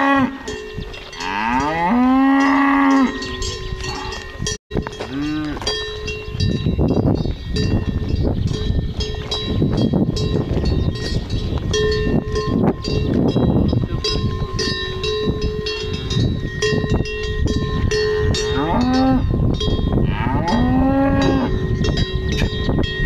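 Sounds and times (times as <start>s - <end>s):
cow mooing: 0.0s - 0.5s, 1.2s - 4.2s, 5.0s - 5.7s, 18.5s - 19.3s, 20.0s - 21.6s
cowbells clanking: 0.0s - 23.0s.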